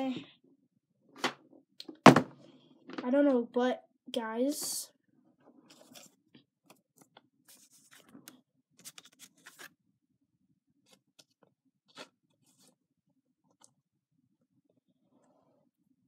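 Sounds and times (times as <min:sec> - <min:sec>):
faint handling scrapes and clicks: 0:05.4 - 0:09.8.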